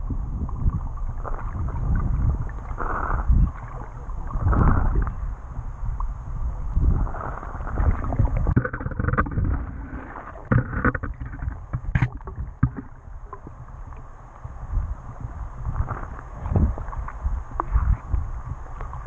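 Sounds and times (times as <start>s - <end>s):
muffled underwater rumble: 0.0s - 19.0s
clicks and knocks: 8.5s - 9.8s, 10.4s - 13.4s.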